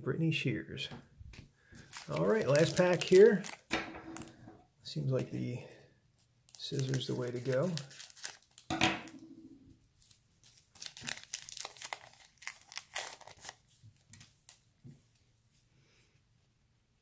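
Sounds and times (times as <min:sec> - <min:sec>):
faint card handling: 0:01.3 - 0:04.4, 0:06.2 - 0:08.6
wrapper crinkling: 0:01.8 - 0:04.4, 0:06.5 - 0:09.2, 0:10.0 - 0:14.6.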